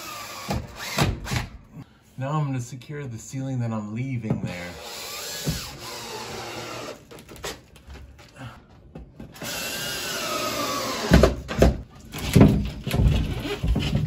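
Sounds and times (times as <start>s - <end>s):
cordless drill whirring: 4.8s - 7.1s, 9.4s - 11.2s.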